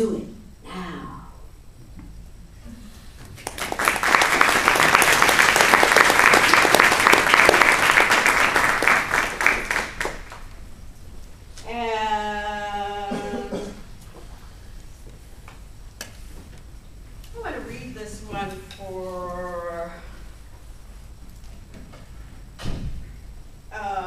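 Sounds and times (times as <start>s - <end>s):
audience applauding: 3.4s - 10.6s.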